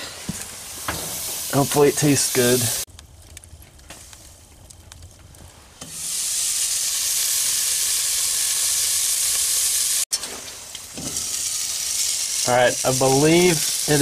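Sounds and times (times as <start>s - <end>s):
meat sizzling in a pot: 0.1s - 2.9s, 5.7s - 14.0s.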